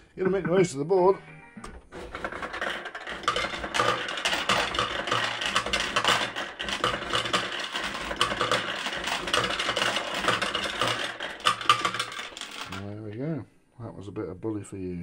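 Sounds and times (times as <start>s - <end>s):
fruit machine clattering: 1.7s - 13.2s.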